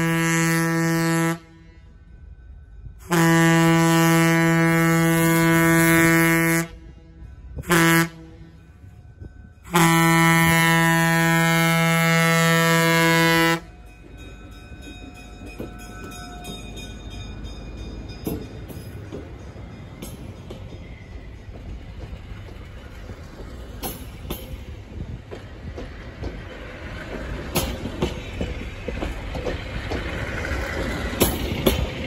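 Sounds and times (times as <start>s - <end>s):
locomotive air horn blasts: 0.0s - 2.0s, 3.0s - 8.8s, 9.6s - 13.7s
train rumble: 0.0s - 32.0s.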